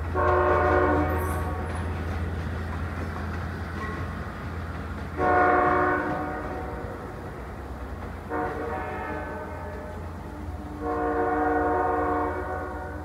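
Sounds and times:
diesel train engine rumble: 0.0s - 13.0s
train horn blasts: 0.1s - 1.9s, 5.1s - 7.1s, 8.3s - 13.0s.

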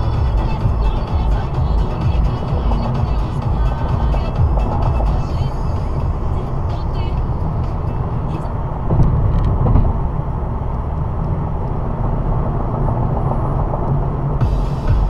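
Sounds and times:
car engine and tyre rumble: 0.0s - 15.0s.

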